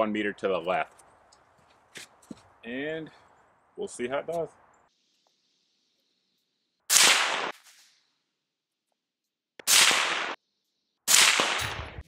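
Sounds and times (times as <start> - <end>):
suppressed rifle shots: 9.6 - 10.4, 11.1 - 12.0.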